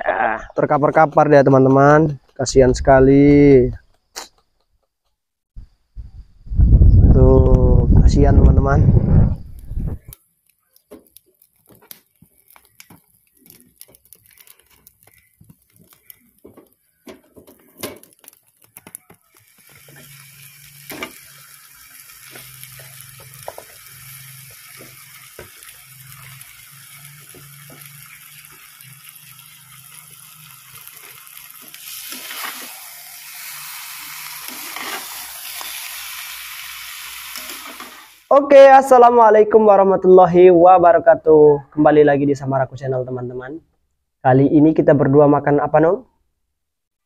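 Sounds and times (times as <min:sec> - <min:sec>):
meat sizzling in a pan: 0:09.4 - 0:38.3.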